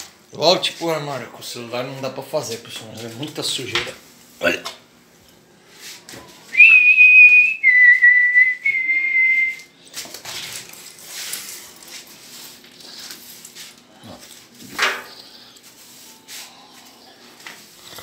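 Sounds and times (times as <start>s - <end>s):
soft rustling: 9.5s - 17.8s.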